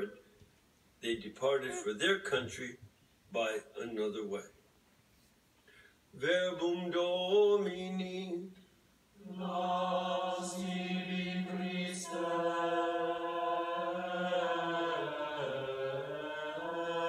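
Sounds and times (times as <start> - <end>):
man chanting liturgy: 6.2 - 8.6, 9.2 - 17.0.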